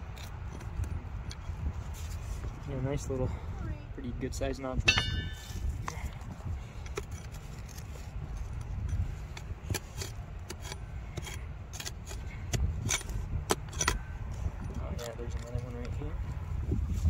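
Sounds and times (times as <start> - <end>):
steady low rumble: 0.0 - 17.0
digging tool striking rock: 4.9 - 5.8.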